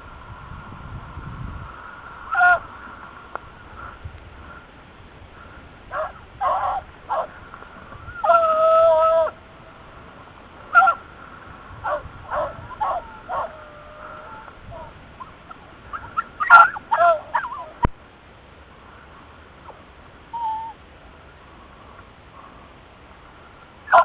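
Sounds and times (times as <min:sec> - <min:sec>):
dogs baying and yelping: 0:05.9 - 0:07.3, 0:08.1 - 0:09.3, 0:11.8 - 0:14.9, 0:15.9 - 0:17.9.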